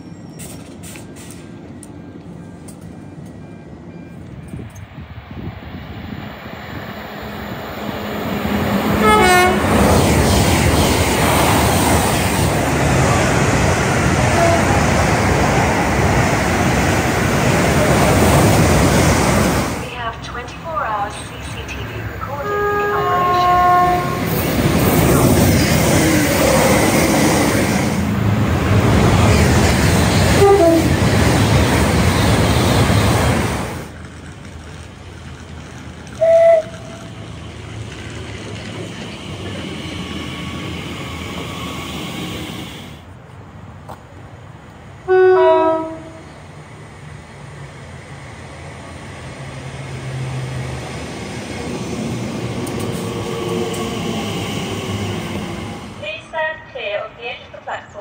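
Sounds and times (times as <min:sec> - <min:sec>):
train wheels rumbling on rails: 0:00.0 - 0:44.8, 0:45.4 - 0:56.5
train horn toot: 0:09.0 - 0:09.7, 0:14.3 - 0:14.9, 0:22.4 - 0:24.3, 0:30.4 - 0:31.0, 0:36.2 - 0:37.0, 0:45.1 - 0:46.2.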